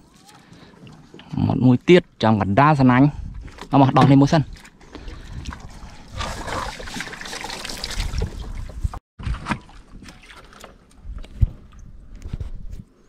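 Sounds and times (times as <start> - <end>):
water trickling and splashing: 3.2 - 11.0.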